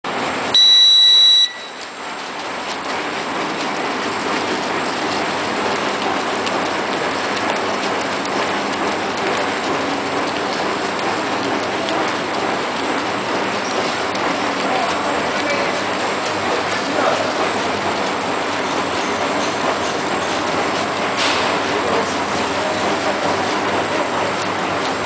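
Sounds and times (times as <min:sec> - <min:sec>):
machine running: 0:00.1 - 0:25.0
electronic beep: 0:00.6 - 0:01.8.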